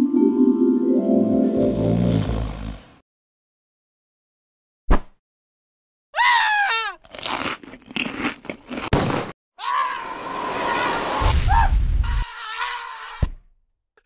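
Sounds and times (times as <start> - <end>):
crunching noises: 6.6 - 9.4.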